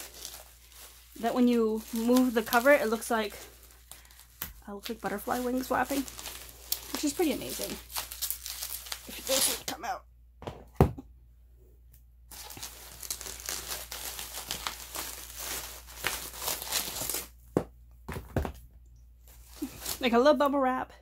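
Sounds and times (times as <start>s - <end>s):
bubble wrap crinkling: 0.0s - 9.8s, 12.3s - 17.6s, 19.2s - 20.3s
knocks of objects set down: 17.5s - 18.7s.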